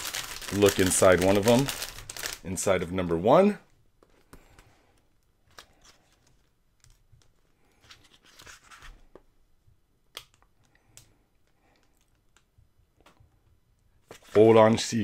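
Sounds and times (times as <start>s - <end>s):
paper pages rustling: 5.5s - 9.2s, 14.0s - 14.6s.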